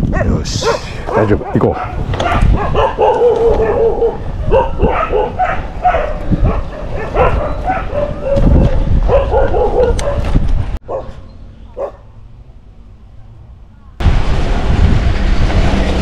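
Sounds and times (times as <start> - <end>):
dogs barking and howling: 0.1 - 11.2, 11.8 - 12.0.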